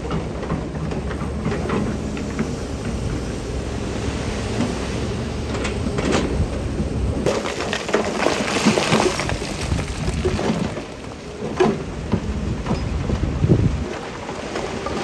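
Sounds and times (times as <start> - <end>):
diesel engine under load: 0.0 - 15.0
rock sliding: 7.2 - 11.4.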